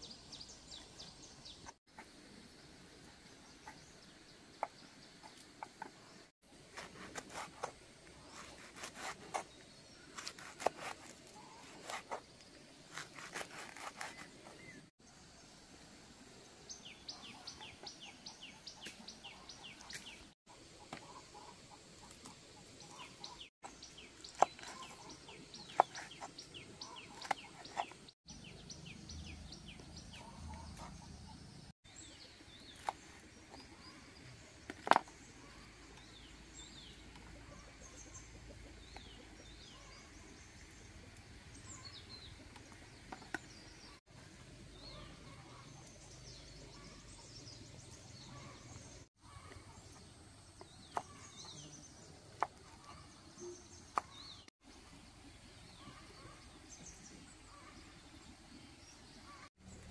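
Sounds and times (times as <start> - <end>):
birds chirping: 16.4 - 59.9.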